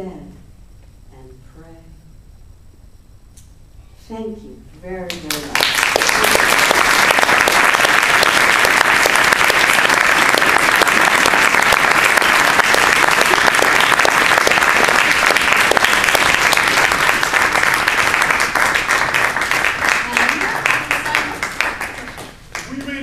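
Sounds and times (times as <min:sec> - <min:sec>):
audience applauding: 0:05.3 - 0:23.0.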